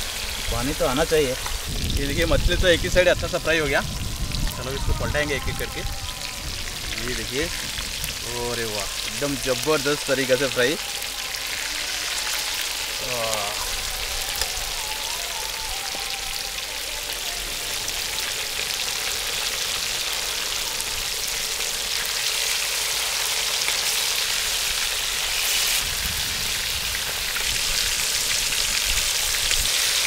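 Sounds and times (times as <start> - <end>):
fish sizzling in hot oil: 0.0 - 30.0.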